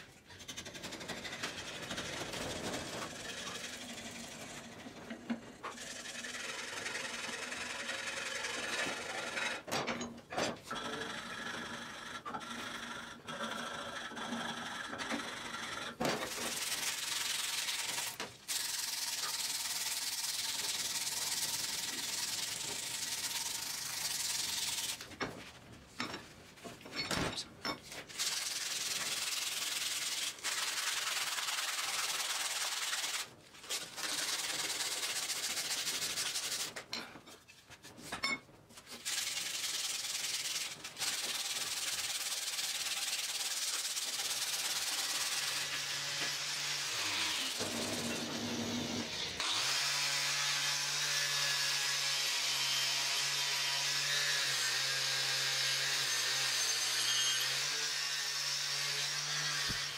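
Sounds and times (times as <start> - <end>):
sandpaper rubbing wood: 16.3 - 25.0, 28.1 - 36.8, 38.8 - 45.7.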